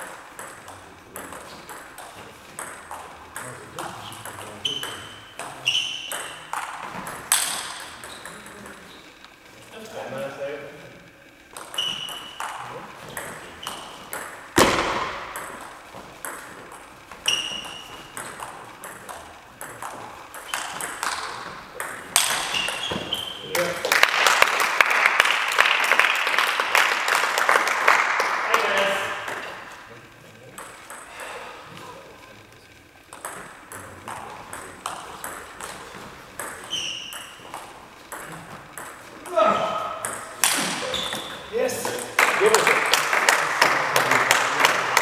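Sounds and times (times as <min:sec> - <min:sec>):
table tennis ball clicking: 0:00.0 - 0:09.5, 0:11.0 - 0:23.9, 0:32.6 - 0:45.0
short high squeak: 0:04.7 - 0:06.1, 0:11.7 - 0:12.4, 0:17.2 - 0:17.9, 0:36.6 - 0:37.4
hard bat strike thud: 0:14.6 - 0:15.4.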